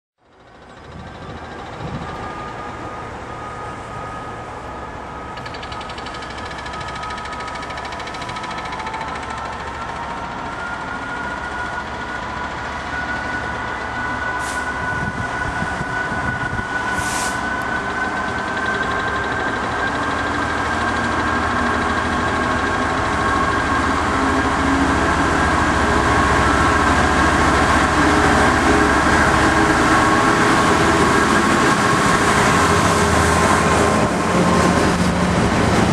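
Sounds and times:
diesel locomotive passing: 0.3 - 35.9
short hisses: 17.0 - 17.4.

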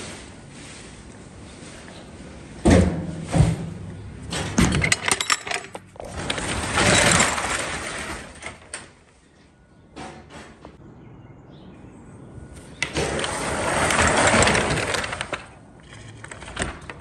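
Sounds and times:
metal gear clanking: 4.5 - 8.6.

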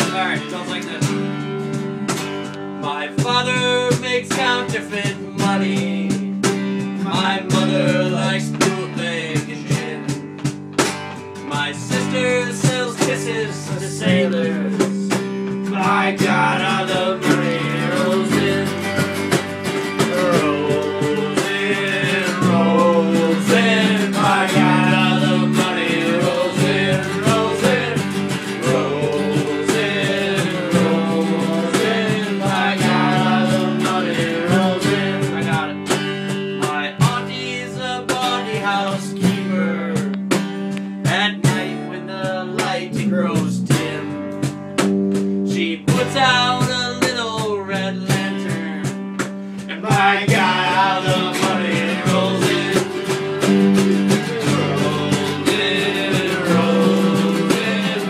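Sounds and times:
acoustic guitar: 0.0 - 58.0
bass guitar line: 0.0 - 58.0
electric guitar melody: 0.8 - 2.9, 13.8 - 36.6, 48.9 - 58.0.

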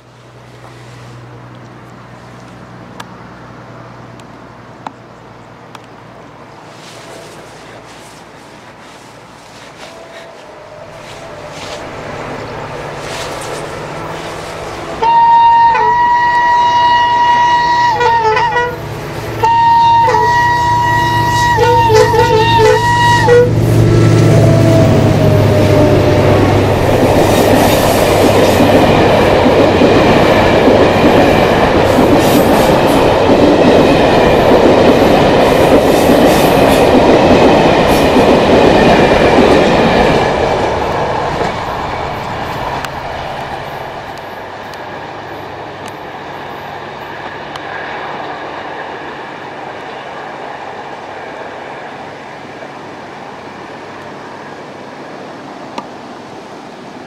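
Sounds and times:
diesel locomotive engines humming: 0.0 - 57.0
train wheels clacking over rails: 24.7 - 45.0.

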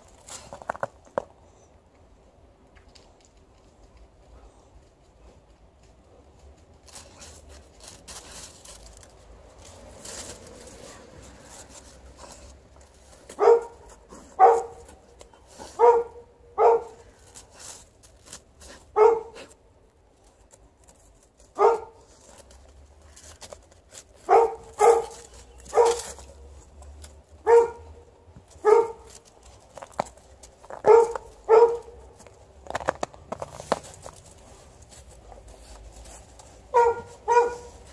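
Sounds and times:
faint scratching and rustling: 3.0 - 16.0, 16.6 - 27.6, 28.4 - 37.9
dog barking: 13.4 - 14.8, 15.8 - 17.0, 19.0 - 19.4, 21.6 - 21.9, 24.3 - 26.1, 27.4 - 27.9, 28.6 - 29.1, 30.8 - 32.0, 36.7 - 37.7.

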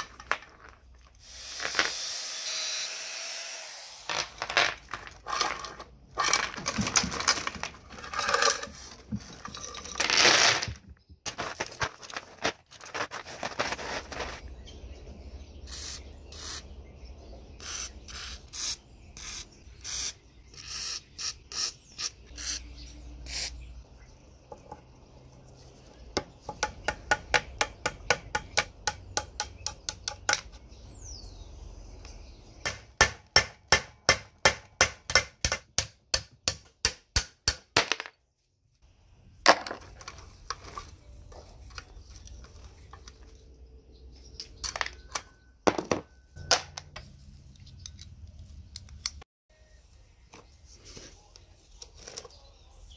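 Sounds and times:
chain rattling and scraping: 4.2 - 10.8.

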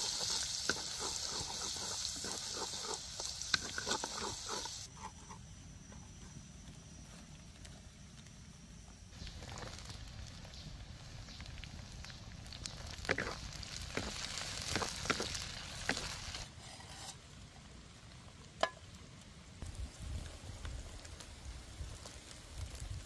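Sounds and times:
food hissing over fire: 0.0 - 4.9, 9.1 - 18.2, 19.5 - 23.0.

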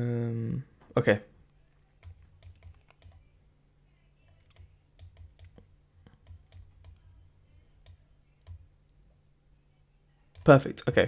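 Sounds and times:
faint low hum: 0.0 - 11.0
computer mouse clicks: 2.0 - 3.2, 4.4 - 7.0.

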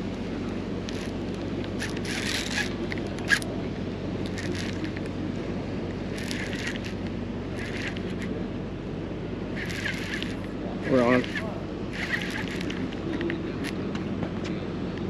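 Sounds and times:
outdoor background noise: 0.0 - 15.0
fishing reel whirring: 0.8 - 3.5, 4.2 - 5.1, 6.1 - 8.3, 9.5 - 13.8.

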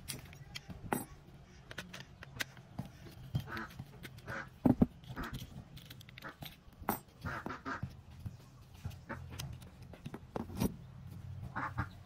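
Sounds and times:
screwdriver clicking and scraping: 0.0 - 7.6, 9.0 - 10.9.

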